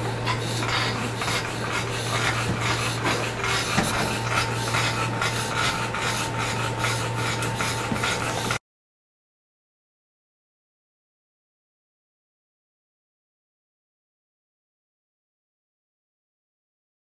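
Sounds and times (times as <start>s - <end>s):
steady low hum: 0.0s - 8.6s.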